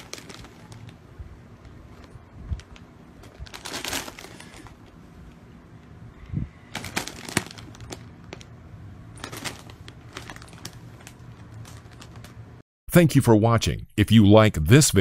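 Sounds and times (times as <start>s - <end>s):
plastic bags crinkling: 0.0s - 5.0s, 6.6s - 12.5s.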